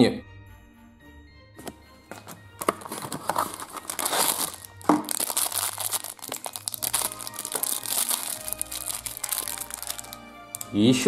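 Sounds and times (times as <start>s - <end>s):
background music: 0.0s - 11.0s
plastic wrapper crinkling and tearing: 2.1s - 10.8s.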